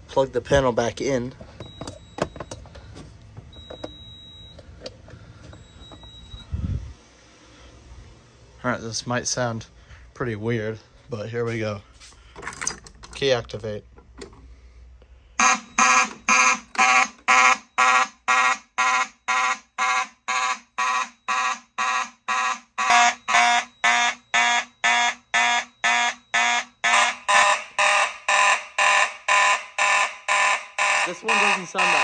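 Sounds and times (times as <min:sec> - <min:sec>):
pulsing fire alarm horns: 0:15.3 - 0:32.0.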